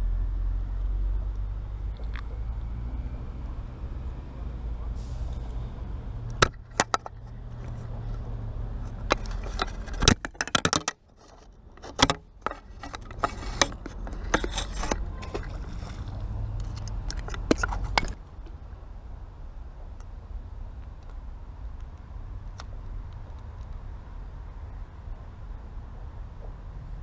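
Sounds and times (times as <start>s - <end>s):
handling clicks and scrapes: 6.3s - 18.6s.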